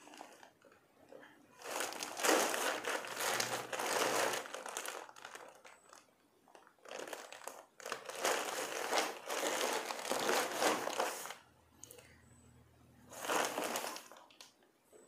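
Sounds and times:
paper bag crinkling: 0.0s - 0.8s, 1.5s - 11.4s, 13.1s - 14.4s.

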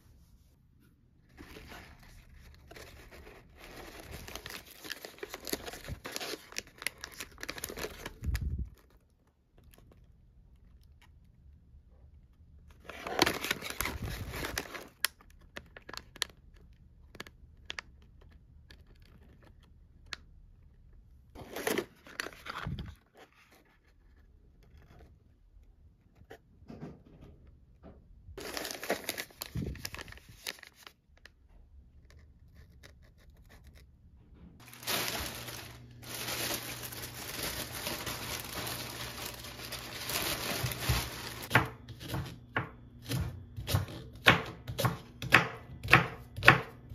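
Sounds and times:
plastic bag rustling: 1.3s - 9.1s, 12.8s - 15.1s, 28.4s - 31.0s, 34.6s - 42.2s
plastic packaging crinkling: 1.3s - 11.2s, 12.7s - 19.7s, 28.4s - 31.3s, 34.6s - 42.2s.

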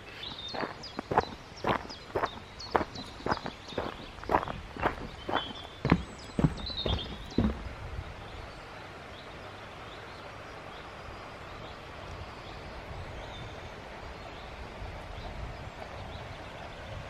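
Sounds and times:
low rumble and hiss: 0.0s - 17.0s
songbird chirps: 0.0s - 17.0s
footstep on gravel: 0.4s - 7.7s.

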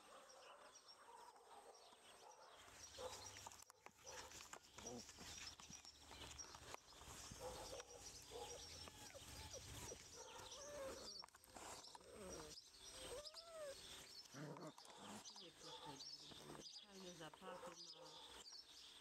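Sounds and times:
small birds chirping: 0.0s - 19.0s
puppies whining and yipping: 4.8s - 15.1s.

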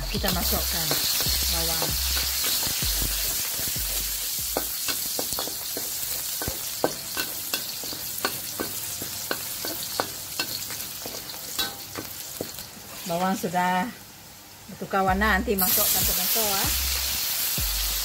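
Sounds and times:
garlic sizzling in hot oil: 0.0s - 18.0s
metal spatula scraping a wok: 0.3s - 13.4s.

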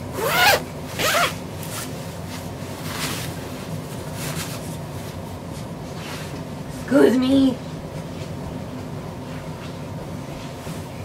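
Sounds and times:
zipper zipping: 0.1s - 1.4s
fabric rustling: 0.2s - 6.4s.

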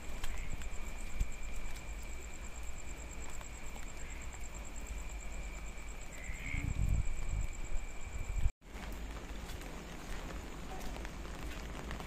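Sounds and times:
raindrops ticking: 0.0s - 6.3s, 8.6s - 12.0s
pulsing insect trill: 0.0s - 8.5s.

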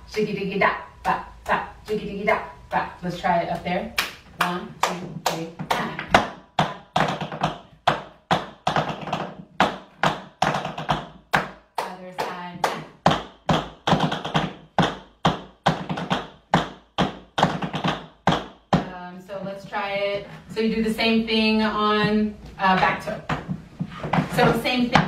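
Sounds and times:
tap shoes on wooden board: 5.0s - 11.6s, 12.2s - 19.0s, 22.8s - 25.0s.

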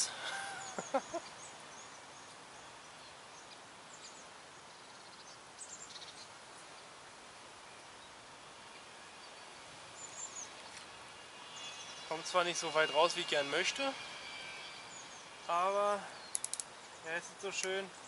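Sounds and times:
steady outdoor hiss: 0.0s - 18.0s
high bird chirps: 9.2s - 18.0s.

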